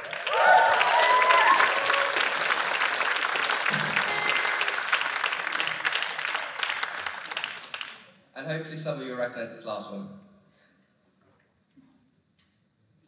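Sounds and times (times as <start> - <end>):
cheers and whoops: 0.0 - 2.7
audience applauding: 0.0 - 8.2.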